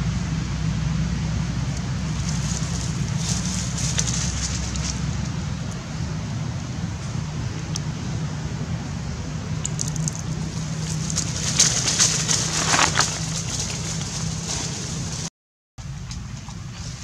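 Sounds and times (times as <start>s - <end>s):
low background hum: 0.0s - 17.0s
dry leaves crackling under feet: 2.0s - 5.8s, 9.6s - 15.3s.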